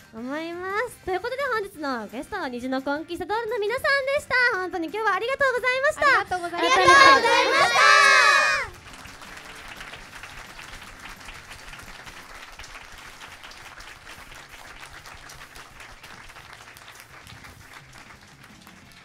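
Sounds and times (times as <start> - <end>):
audience applauding: 6.6 - 19.0.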